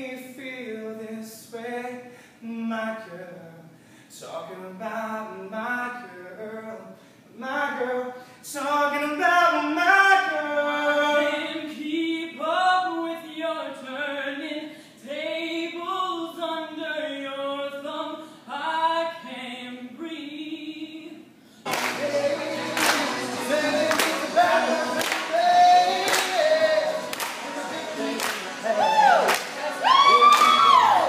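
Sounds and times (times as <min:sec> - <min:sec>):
crowd singing together: 0:21.7 - 0:31.0
person singing unaccompanied: 0:21.7 - 0:31.0.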